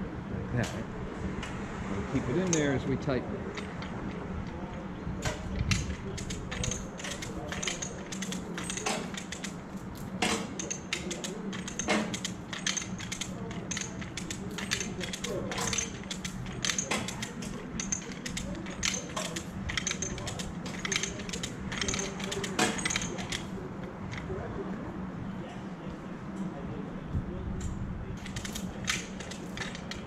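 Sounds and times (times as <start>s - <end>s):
steady low hum: 0.0s - 30.0s
chain hoist ratcheting clicks: 2.4s - 2.9s, 3.5s - 24.3s, 28.2s - 30.0s
chain clinks: 5.5s - 23.6s, 28.2s - 30.0s.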